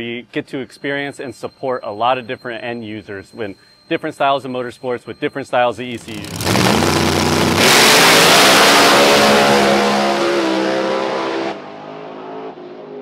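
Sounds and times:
drag race cars accelerating: 6.0 - 13.0.

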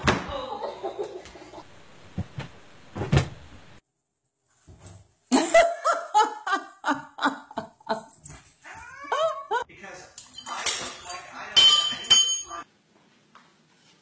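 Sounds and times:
cats crying while wrestling: 8.6 - 9.7.

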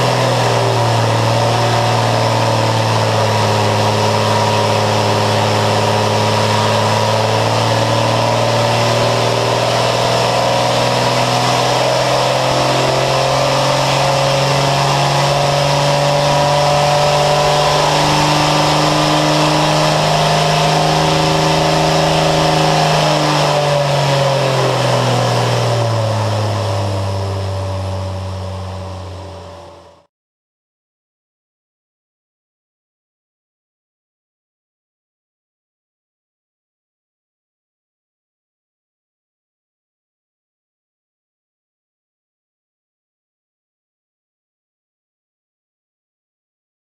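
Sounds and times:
aircraft engine running: 0.0 - 30.1.

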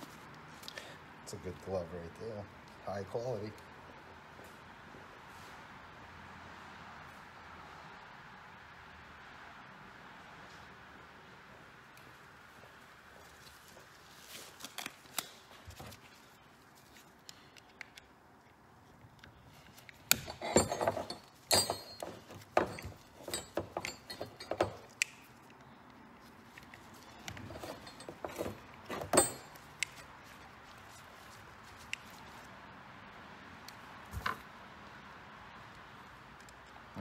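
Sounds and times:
metal hand tools clinking: 19.9 - 25.5, 26.6 - 30.0.

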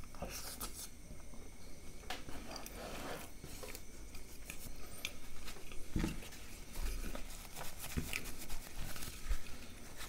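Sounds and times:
paper napkin rustling: 2.8 - 10.0.

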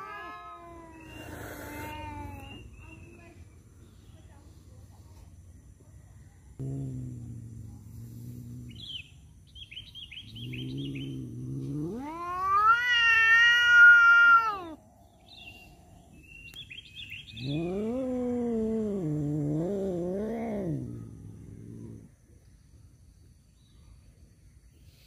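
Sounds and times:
cat yowling: 0.0 - 2.6, 10.6 - 14.8.

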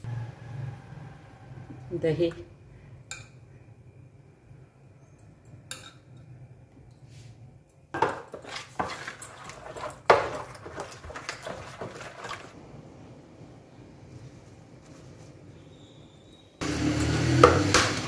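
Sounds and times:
spoon scraping mixing bowl: 8.0 - 12.6.

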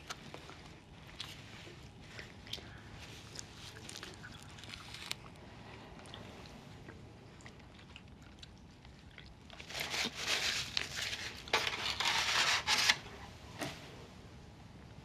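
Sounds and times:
paper wrapping crinkling: 9.5 - 13.0.

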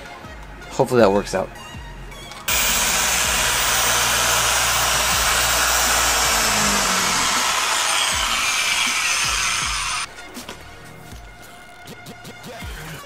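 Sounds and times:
car polisher whirring: 2.5 - 10.1.

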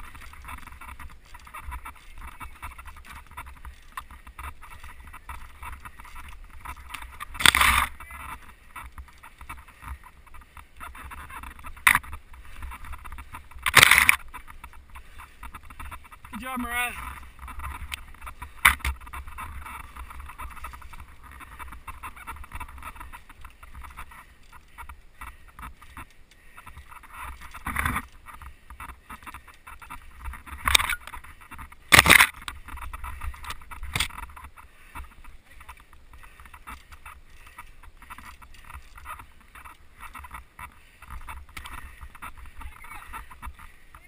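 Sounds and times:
bike tyre and rattle noise: 0.0 - 44.0.

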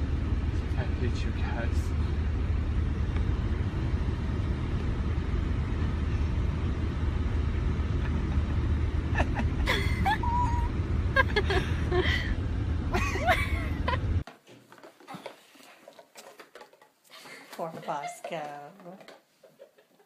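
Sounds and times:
car rumble from inside: 0.0 - 14.2.

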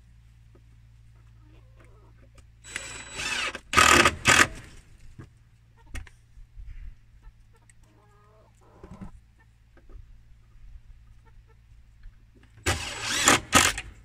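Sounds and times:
faint hen clucks: 0.4 - 2.6, 5.3 - 12.3
cordless drill whirring: 2.6 - 4.5, 12.7 - 13.9.

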